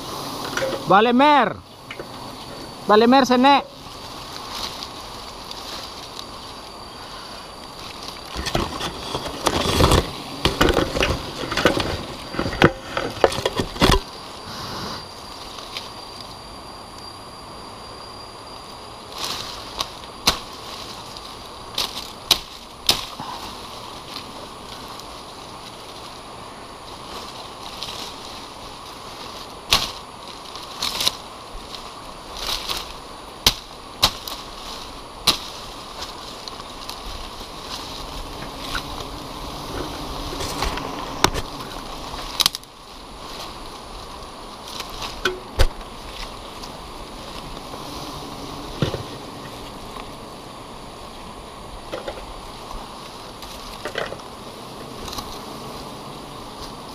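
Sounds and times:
leaves rustling: 0.0s - 56.9s
steady hiss: 0.0s - 56.9s
twigs and branches snapping: 19.2s - 23.2s, 29.2s - 39.1s, 40.4s - 47.7s.

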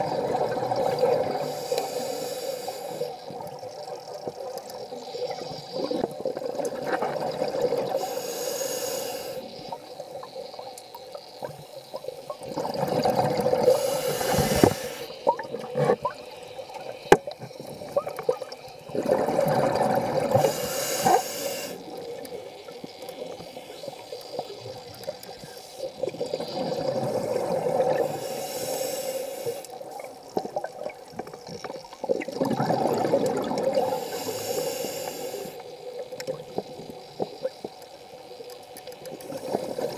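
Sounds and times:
exhaled bubbles gurgling underwater: 0.0s - 39.9s
regulator hissing: 0.8s - 3.1s, 8.0s - 9.6s, 13.6s - 15.2s, 20.3s - 22.1s, 28.0s - 29.7s, 33.8s - 35.7s.

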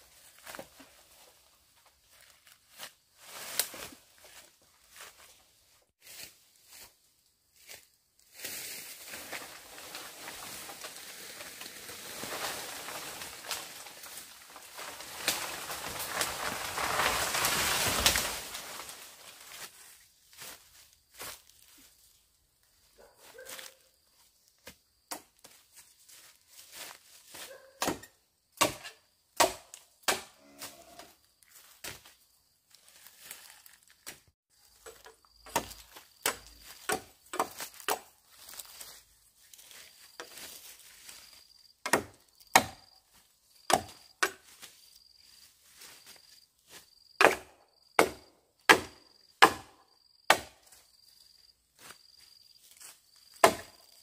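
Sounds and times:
blade chopping into wood: 27.8s - 30.4s, 41.9s - 42.8s, 43.7s - 44.4s, 47.2s - 50.6s, 53.4s - 53.8s
insect chirping: 30.4s - 54.0s.

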